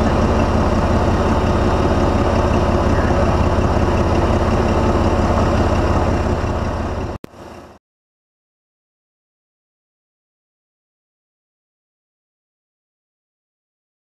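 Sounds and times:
hydraulic power unit pulsing: 0:00.0 - 0:07.8.

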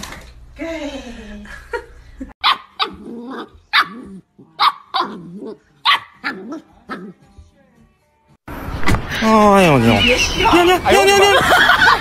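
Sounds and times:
puppy yapping: 0:02.4 - 0:07.2
puppy growling: 0:02.8 - 0:07.2.

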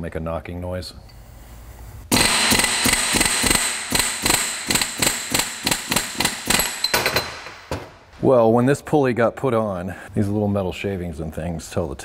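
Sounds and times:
pneumatic air hammer rattling: 0:02.1 - 0:07.5.

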